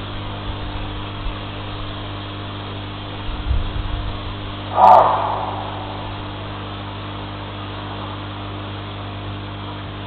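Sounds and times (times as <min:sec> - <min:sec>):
electrical hum: 0:04.4 - 0:08.2.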